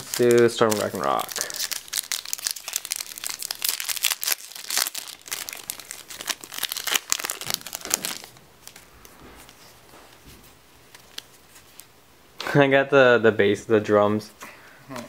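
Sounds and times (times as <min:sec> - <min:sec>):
foil wrapper tearing and crinkling: 0:00.0 - 0:08.8.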